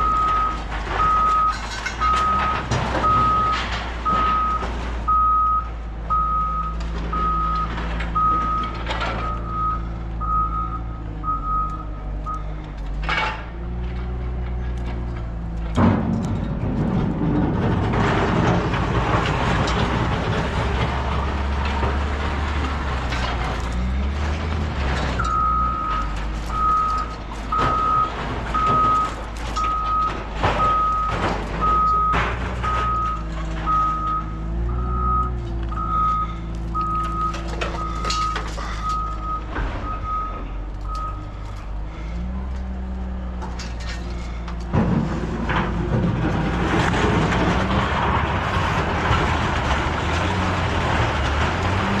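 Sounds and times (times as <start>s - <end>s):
metal clanks: 0.0s - 5.1s, 12.2s - 52.0s
back-up alarm beeping: 0.0s - 12.5s, 25.2s - 41.3s
heavy vehicle engine running: 0.0s - 52.0s.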